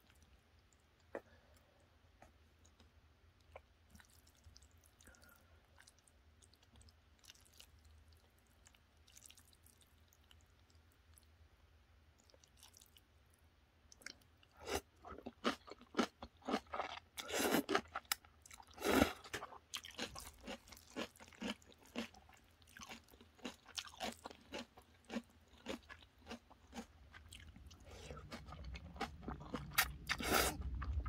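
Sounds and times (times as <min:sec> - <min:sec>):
close-up chewing: 0:13.9 - 0:31.0.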